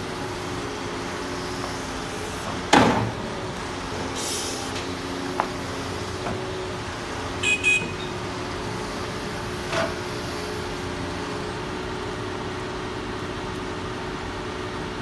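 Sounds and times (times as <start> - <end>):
diesel engine running: 0.0 - 15.0
short beeps: 7.4 - 8.2.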